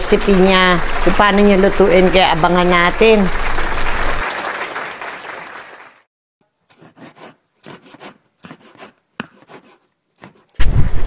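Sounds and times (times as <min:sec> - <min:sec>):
knife slicing onion on board: 0:06.7 - 0:10.6.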